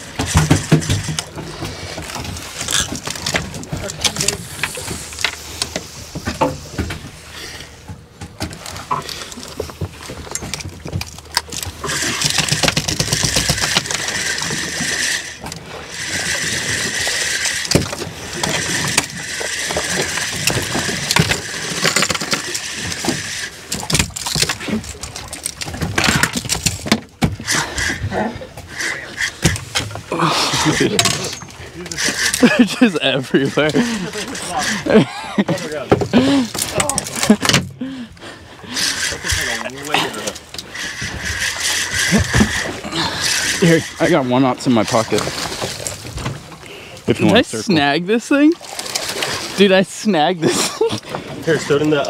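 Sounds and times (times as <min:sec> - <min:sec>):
fishing reel whirring: 0:11.4 - 0:26.5, 0:28.7 - 0:29.7, 0:30.5 - 0:32.6, 0:38.6 - 0:44.1.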